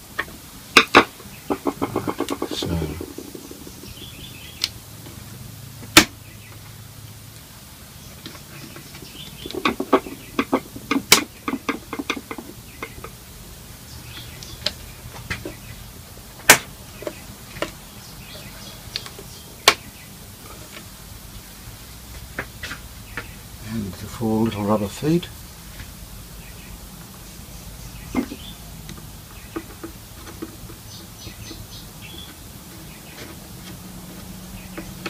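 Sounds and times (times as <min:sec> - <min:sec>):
taps and rattles: 0:00.2 - 0:04.8, 0:08.2 - 0:13.2, 0:28.1 - 0:32.4.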